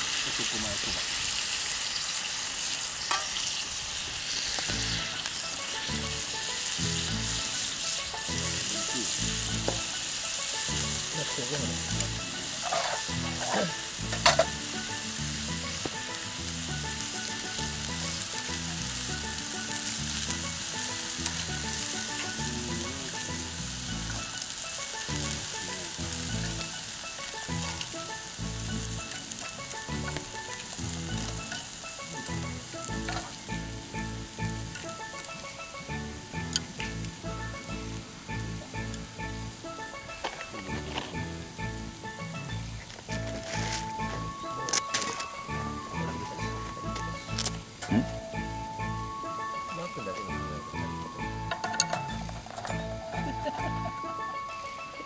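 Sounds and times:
noodles sizzling on grill plate: 0.0s - 55.0s.

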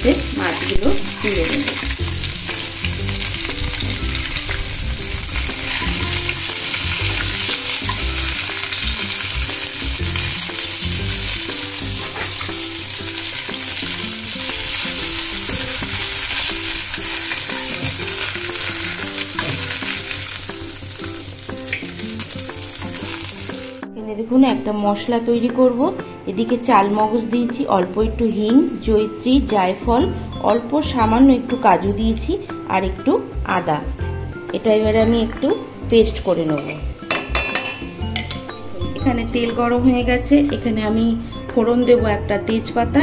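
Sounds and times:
fish sizzling in hot oil: 0.0s - 23.9s
metal spatula scraping and tapping: 12.0s - 12.6s, 17.2s - 20.0s, 36.5s - 38.5s.

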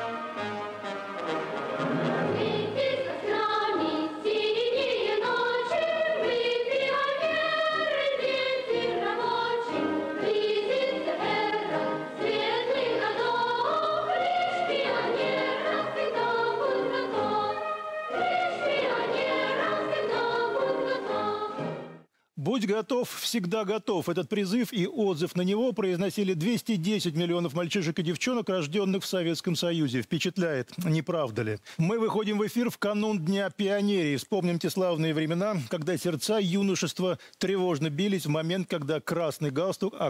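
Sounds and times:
choir singing: 1.3s - 22.1s.

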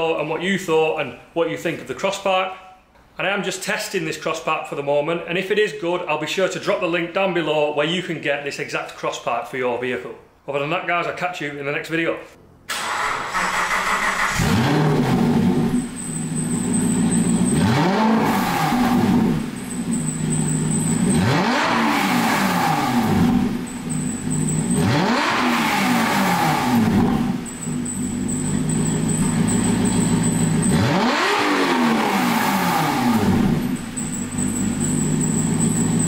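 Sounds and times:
car engine revving: 12.8s - 36.0s.

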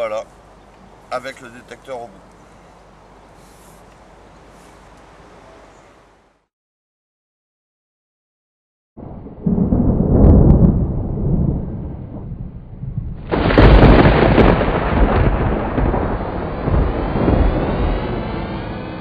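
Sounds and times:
thunder crack: 9.0s - 19.0s
thunder rumble: 9.0s - 19.0s.

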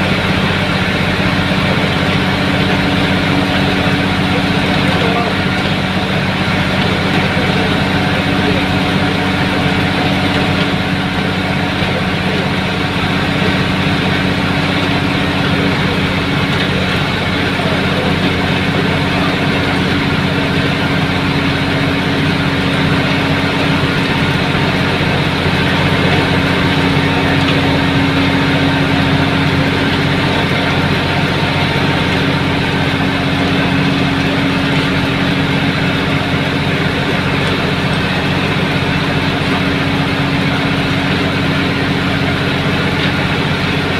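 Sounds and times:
diesel engine hum: 0.0s - 43.9s.

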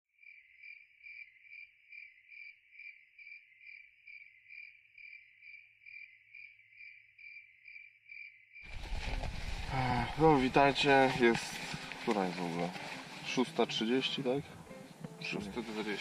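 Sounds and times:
cricket chirping: 0.2s - 9.7s.

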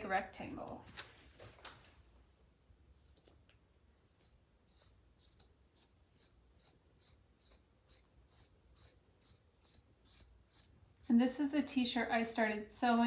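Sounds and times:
scissors cutting fabric: 3.0s - 11.2s, 12.2s - 13.0s.

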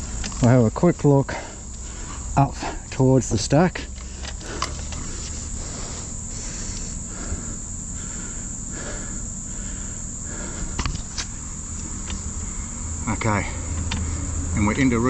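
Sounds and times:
insects trilling: 0.0s - 15.0s
low steady hum: 0.0s - 15.0s.

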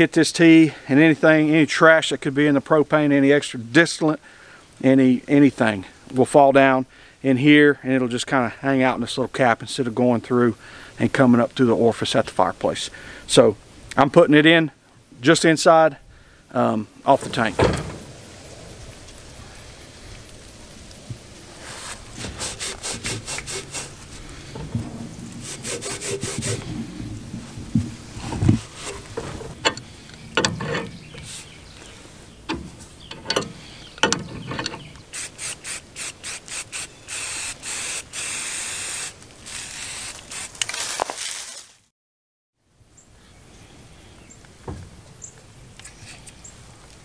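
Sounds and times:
wrench clicking on pipe fittings: 29.6s - 31.3s, 32.5s - 34.9s.

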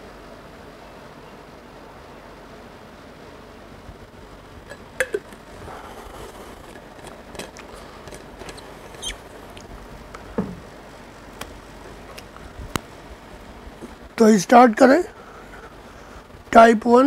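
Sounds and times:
steady background hiss: 0.0s - 17.0s
sharp clicks with falling squeak: 8.4s - 9.2s.

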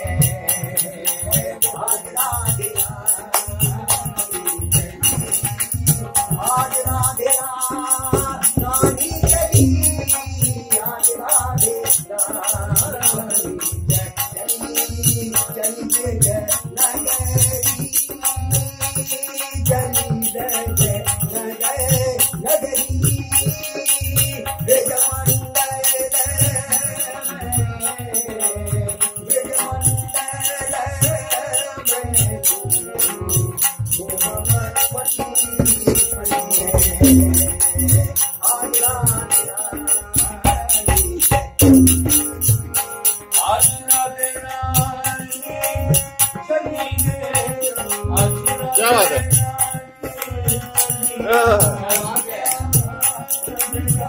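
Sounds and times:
harmonium: 0.0s - 54.0s
jingling percussion: 0.0s - 54.0s
man singing: 0.0s - 54.0s
low drum beat: 36.9s - 38.2s, 41.1s - 42.6s.

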